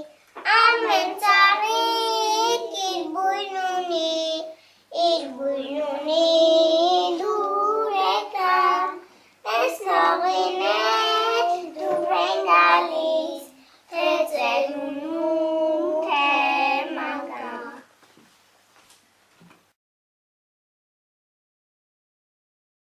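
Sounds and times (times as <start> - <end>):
children singing unaccompanied: 0.0 - 17.9.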